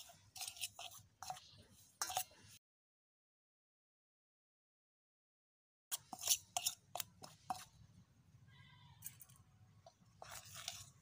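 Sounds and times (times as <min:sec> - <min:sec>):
spoon scraping metal bowl: 0:00.0 - 0:02.6, 0:05.9 - 0:07.8, 0:09.0 - 0:11.0.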